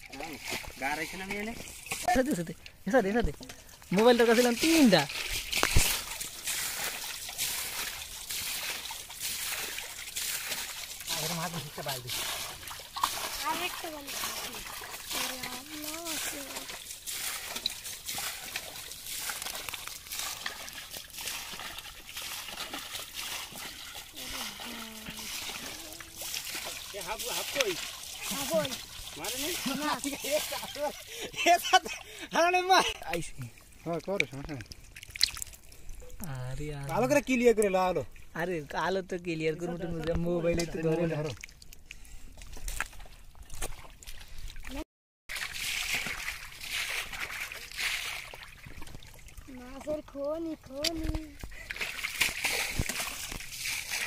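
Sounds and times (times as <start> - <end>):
mud squelches and splashes: 0.0 - 38.6, 39.9 - 54.0
muddy water sloshing: 0.0 - 38.6, 39.3 - 54.0
metal bowl scooping mud: 3.4 - 30.8
catfish flapping in muddy water: 4.4 - 31.0.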